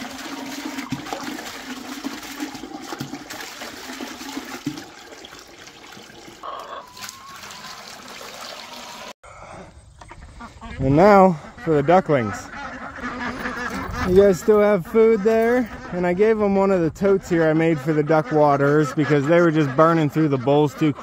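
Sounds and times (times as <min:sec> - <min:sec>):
water running and splashing: 0:00.0 - 0:09.2.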